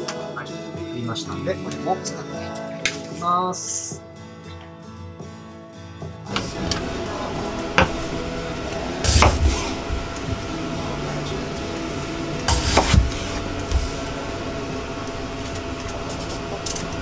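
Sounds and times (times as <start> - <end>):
steady hiss: 6.3 - 17.0.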